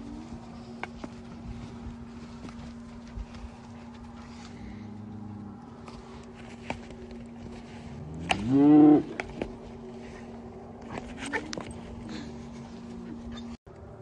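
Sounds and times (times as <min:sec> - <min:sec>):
cow mooing: 0:08.0 - 0:09.2.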